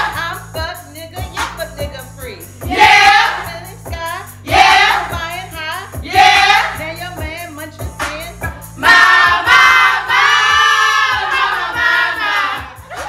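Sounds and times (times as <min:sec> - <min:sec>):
song with a steady beat: 0:00.0 - 0:13.0
women singing along loudly: 0:02.7 - 0:03.5, 0:04.5 - 0:05.3, 0:06.0 - 0:06.9, 0:08.8 - 0:12.8.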